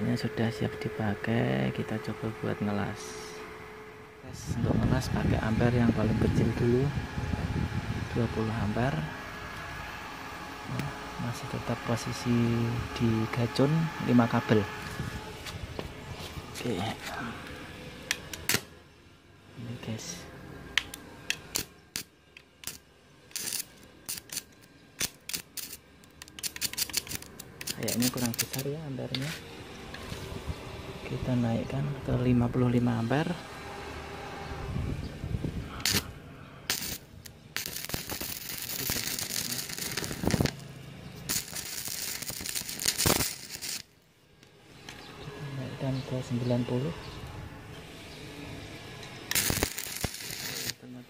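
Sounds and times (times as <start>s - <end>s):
welding electrode clicks and crackles: 8.9s - 15.0s, 16.5s - 18.7s, 20.7s - 29.4s, 35.7s - 45.0s, 49.0s - 51.0s
welding arc sputter: 20.8s - 29.3s, 35.7s - 44.0s, 49.2s - 50.9s.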